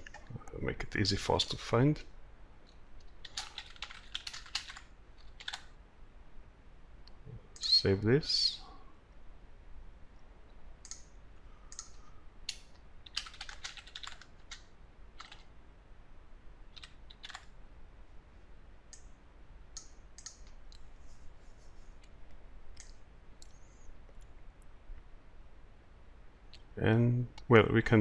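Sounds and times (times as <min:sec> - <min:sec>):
keyboard typing: 0:03.2 - 0:05.7, 0:11.7 - 0:15.5, 0:16.7 - 0:17.5.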